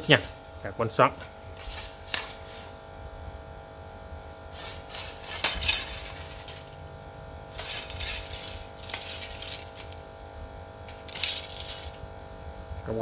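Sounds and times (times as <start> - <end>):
hand rubbing along fishing rod: 1.6 - 2.8.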